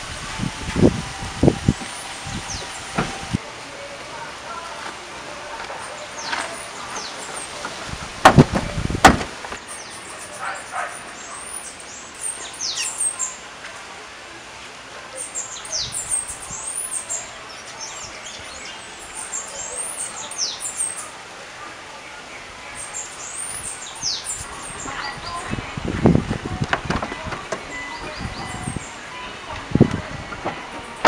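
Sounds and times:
wild birds chirping: 0:01.8 - 0:03.4, 0:04.1 - 0:08.0, 0:08.7 - 0:13.6, 0:15.1 - 0:25.8, 0:27.0 - 0:29.6
heavy thuds: 0:08.2 - 0:09.5.

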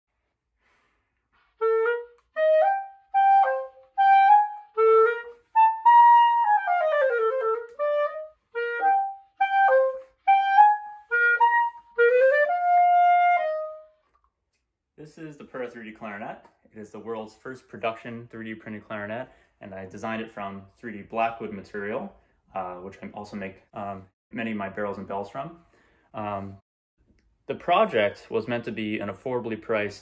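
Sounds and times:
solo clarinet melody: 0:01.4 - 0:14.0.

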